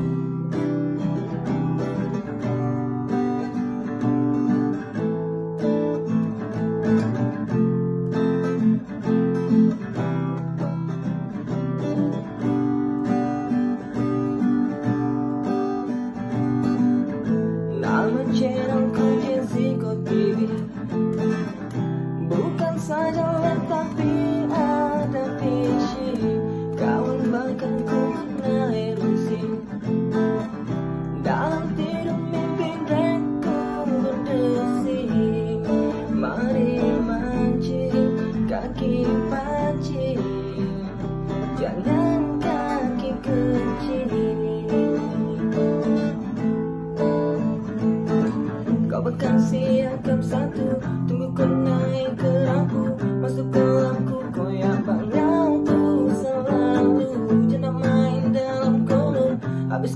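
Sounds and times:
strummed acoustic guitar: 0.0s - 59.9s
person singing: 17.6s - 46.4s, 47.0s - 59.9s.

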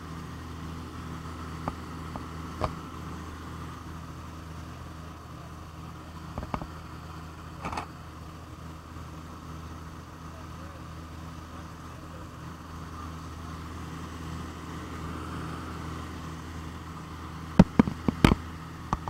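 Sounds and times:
aircraft piston engines droning: 0.0s - 19.0s.

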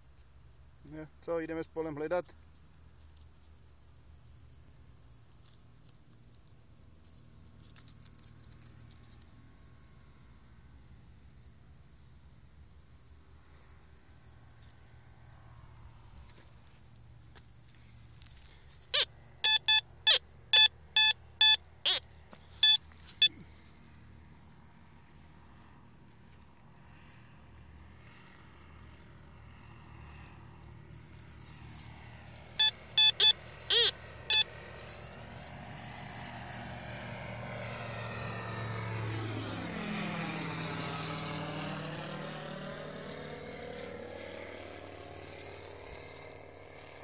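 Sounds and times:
dry clicks and rustles: 5.2s - 9.4s
metal detector beeping: 18.9s - 23.4s, 32.6s - 34.6s.

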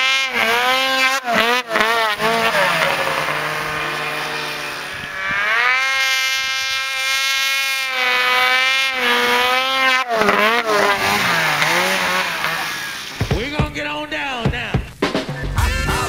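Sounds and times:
snowmobile engine revving: 0.0s - 16.0s.

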